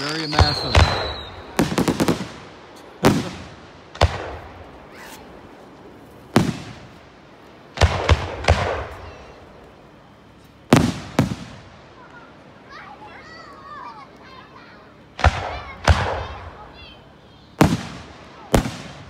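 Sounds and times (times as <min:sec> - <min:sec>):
fireworks bangs with echo: 0:00.0 - 0:05.5, 0:06.2 - 0:09.6, 0:10.7 - 0:12.3, 0:15.1 - 0:19.0.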